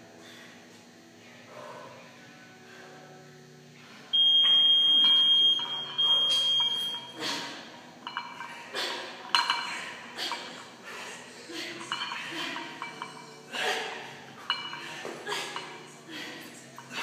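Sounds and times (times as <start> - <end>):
long high timer beep: 4.2 - 7.1
barbells clinking and rattling: 8.0 - 10.8, 11.5 - 17.0.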